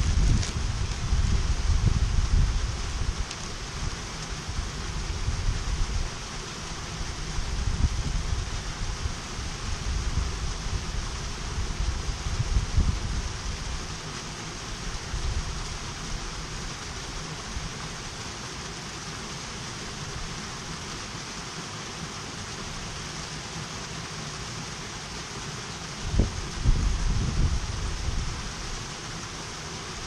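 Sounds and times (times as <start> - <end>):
wind buffeting microphone: 0.0 - 6.2, 7.0 - 13.9, 26.0 - 28.8
stream rushing over rocks: 0.0 - 30.0.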